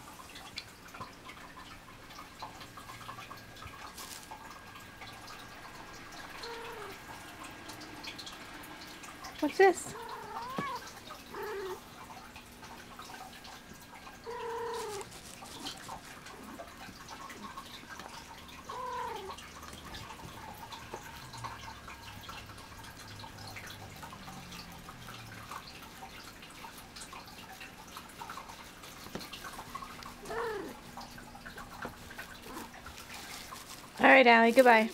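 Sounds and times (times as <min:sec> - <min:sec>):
cat meowing: 0:06.4 - 0:07.0, 0:09.9 - 0:11.8, 0:14.3 - 0:15.1, 0:18.7 - 0:19.4, 0:30.2 - 0:30.8.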